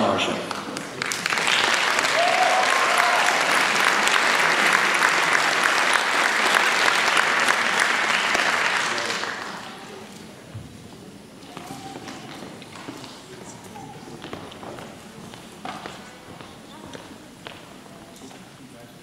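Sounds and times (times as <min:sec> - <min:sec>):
audience applauding: 0:00.2 - 0:10.0.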